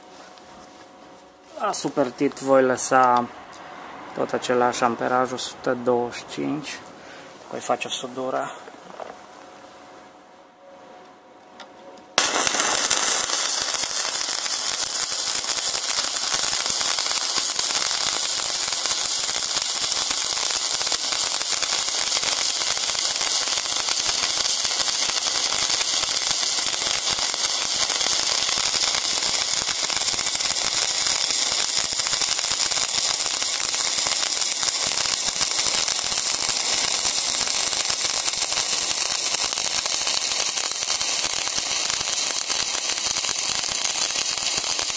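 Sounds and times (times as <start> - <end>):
welding arc crackling hiss: 12.2 - 44.9.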